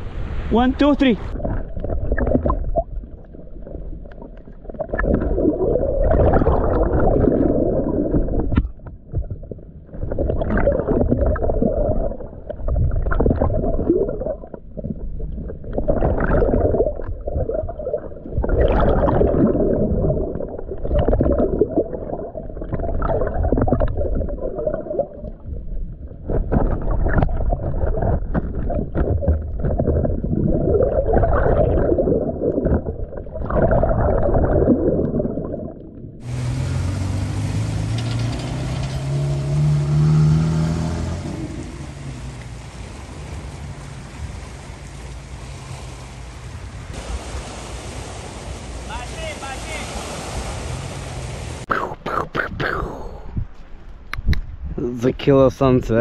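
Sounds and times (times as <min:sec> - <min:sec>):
underwater gurgling and rushing: 0:00.0 - 0:56.0
stream of bubbles: 0:01.2 - 0:36.3, 0:51.6 - 0:53.5.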